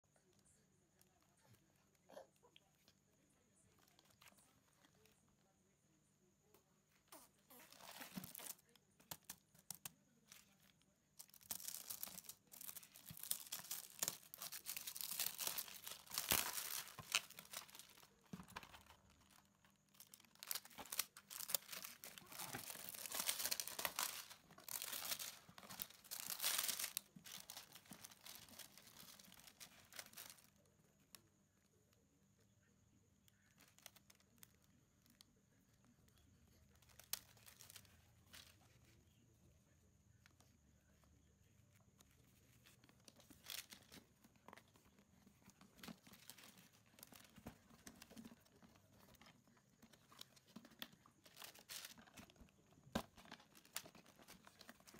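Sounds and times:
plastic wrapping crinkling: 7.5s - 30.7s, 36.8s - 38.7s, 42.4s - 54.9s.

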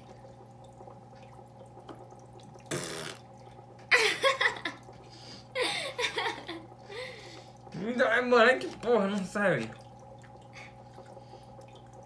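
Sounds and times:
wet slurp while eating: 2.6s - 3.4s
person laughing: 3.9s - 4.8s, 5.6s - 7.1s.

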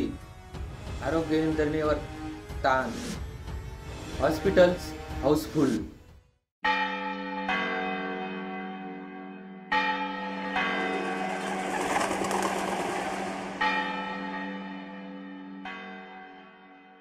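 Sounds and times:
church bells ringing: 6.6s - 17.0s
rush of noise: 11.1s - 13.7s.

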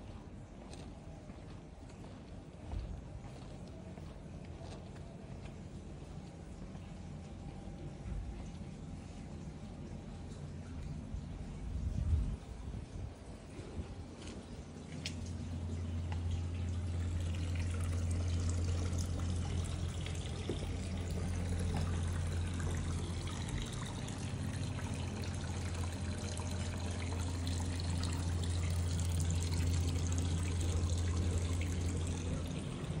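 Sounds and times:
low hum: 0.0s - 33.0s
fountain water trickling: 14.5s - 33.0s.

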